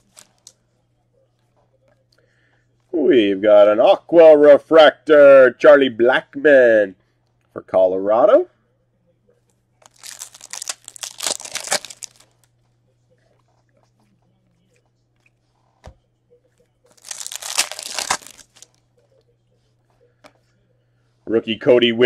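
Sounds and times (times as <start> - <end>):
foil wrapper crinkling and tearing: 9.8 - 12.5, 16.9 - 18.8.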